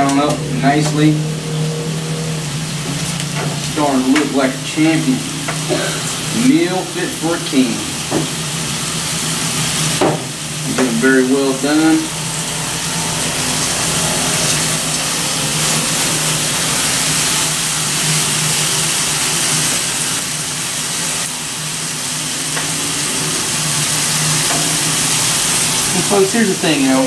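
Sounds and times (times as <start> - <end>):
low steady hum: 0.0 - 27.0
meat sizzling on a grill: 0.0 - 27.0.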